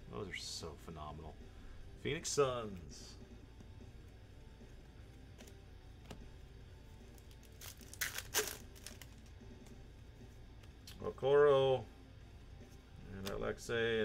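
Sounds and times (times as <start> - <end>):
plastic wrapper crinkling and tearing: 7.2 - 9.3.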